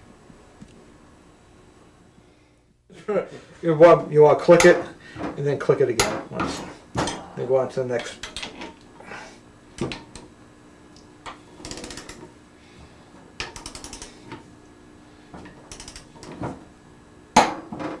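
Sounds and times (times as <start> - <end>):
torque wrench clicking: 13.4 - 14.1, 15.7 - 16.1
quick ratchet clicks: 13.5 - 14.1, 15.7 - 16.1.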